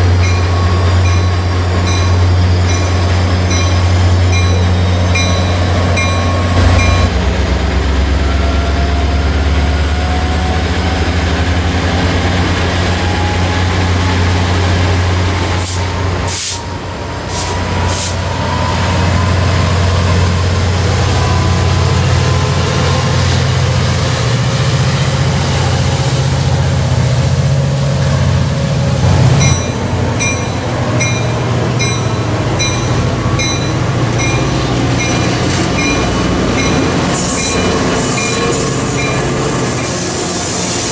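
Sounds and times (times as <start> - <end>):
diesel engine rumble: 0.0 - 40.7
bell ringing: 0.2 - 7.1, 29.4 - 39.3
short air hisses: 15.6 - 16.7, 17.3 - 18.2.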